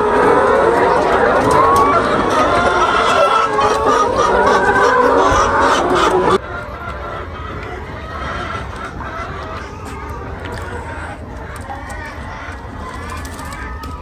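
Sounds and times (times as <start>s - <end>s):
hens clucking: 0.0s - 14.0s.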